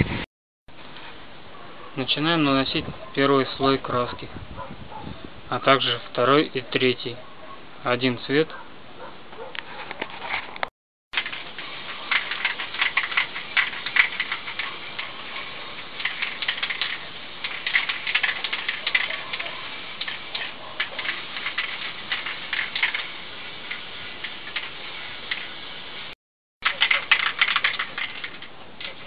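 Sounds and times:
spray paint can spraying: 11.2 - 29.0.

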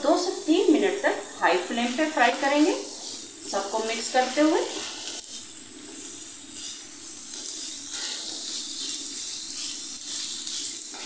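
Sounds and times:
food sizzling in a pan: 0.0 - 11.0
spatula scraping a pan: 2.2 - 11.0.

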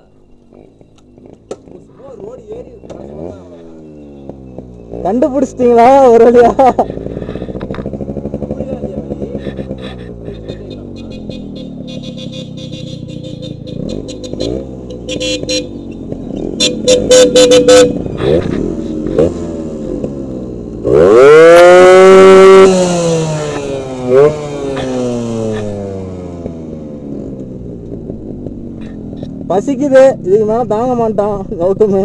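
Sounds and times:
motorcycle engines revving: 0.0 - 32.0
short horn beeps: 10.5 - 16.0, 16.6 - 18.3.

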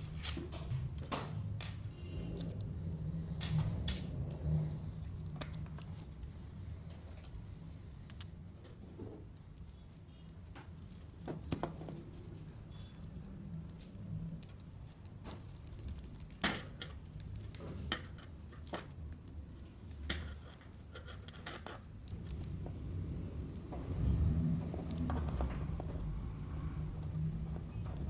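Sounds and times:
small wooden parts clicking: 1.0 - 22.6, 23.4 - 28.0.

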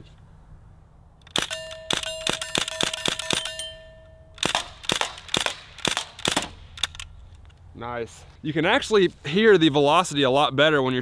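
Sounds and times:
steady ringing tone: 1.4 - 4.5
bb gun firing sharp pops: 4.4 - 7.0.

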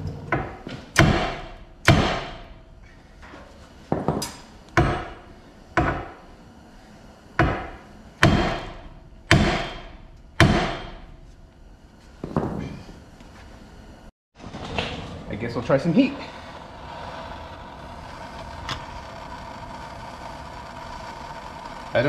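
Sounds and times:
hammer striking steel: 1.0 - 2.6, 4.1 - 5.2, 7.4 - 11.1.

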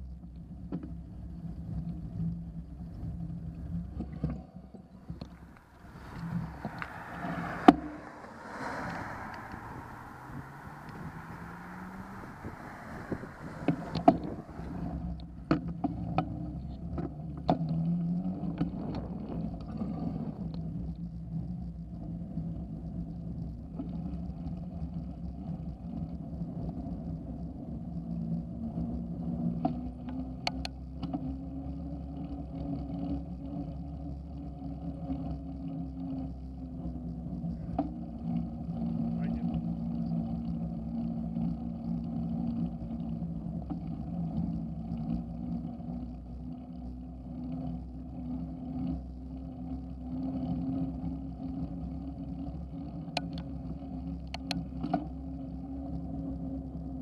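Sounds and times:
bike tyres humming on asphalt: 4.9 - 16.6.

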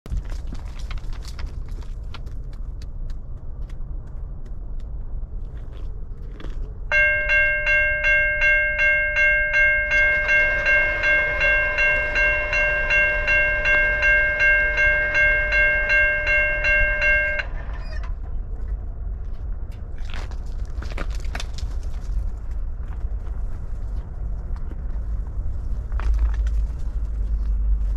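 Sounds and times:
railroad crossing bell ringing: 6.9 - 18.2.

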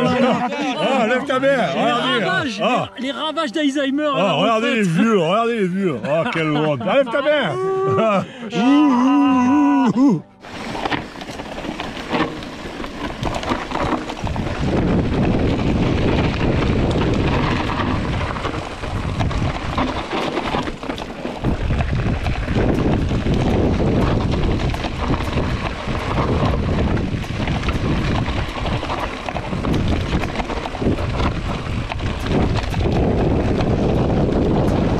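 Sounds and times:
bike rattling: 10.4 - 34.9
tyres crunching on loose stones: 10.4 - 34.9
wind buffeting microphone: 10.4 - 34.9.

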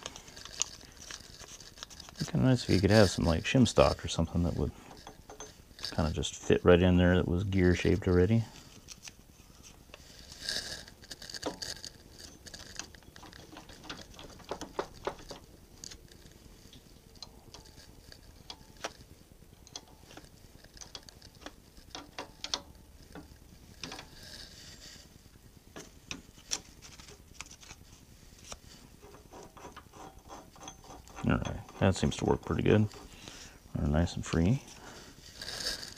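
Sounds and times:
gears being handled: 0.0 - 6.8, 7.7 - 25.1, 25.8 - 35.9
wrench clicking on metal: 19.6 - 24.0.

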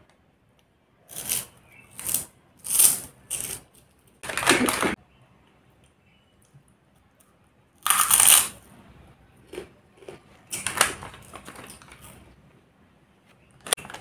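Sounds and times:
crunchy snacks being chewed: 7.8 - 8.6, 9.4 - 12.2.

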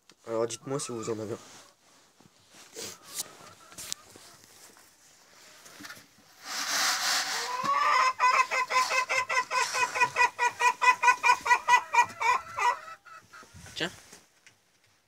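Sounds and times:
chicken clucking rapidly: 6.8 - 13.6.

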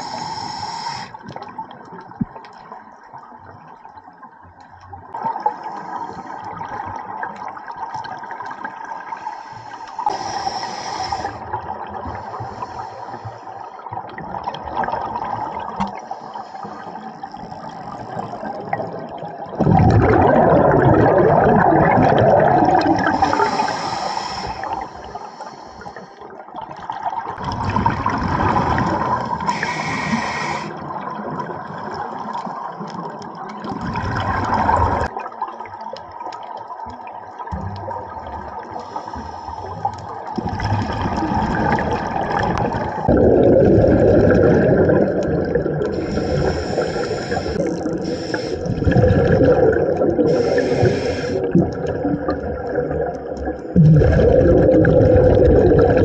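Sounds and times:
underwater exhaled bubbles rushing: 10.0 - 56.0.

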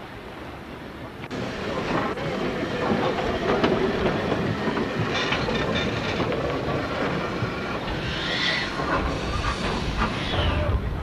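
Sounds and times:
steam locomotive clattering: 1.3 - 11.0
steam hiss: 7.1 - 11.0.

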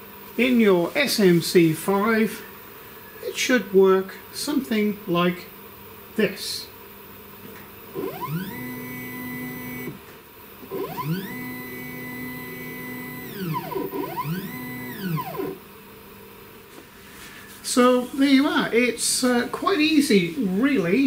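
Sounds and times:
stepper motor whining: 7.9 - 10.0, 10.6 - 15.6.

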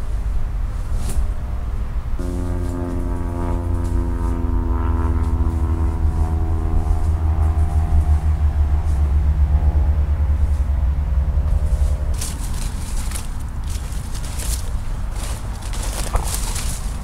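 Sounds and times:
leaves and undergrowth rustling: 0.0 - 1.5, 10.3 - 17.0
deep traffic rumble: 0.0 - 17.0
heavy vehicle engine drone: 0.0 - 17.0.

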